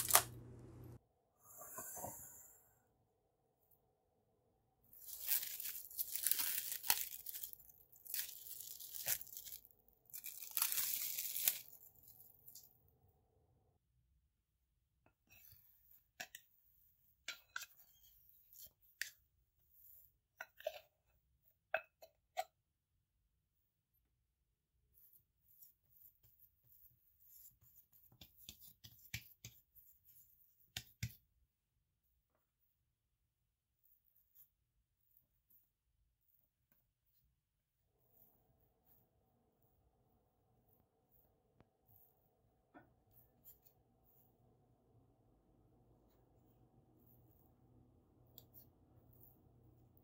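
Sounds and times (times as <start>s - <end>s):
cling wrap peeling and crinkling: 0.0s - 0.3s, 5.0s - 12.6s
hands patting dough: 24.9s - 32.7s.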